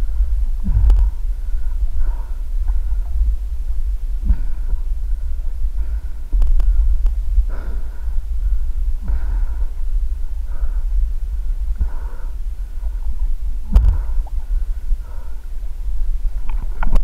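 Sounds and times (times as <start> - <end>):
muffled low rumble: 0.0 - 17.0.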